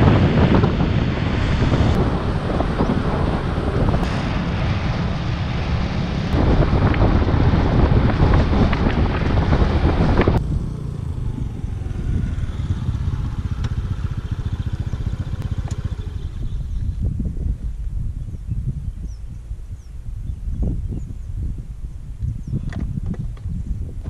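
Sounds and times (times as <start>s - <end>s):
scooter engine: 0.0s - 17.0s
steady low rumble: 0.0s - 24.0s
wind buffeting microphone: 0.0s - 24.0s.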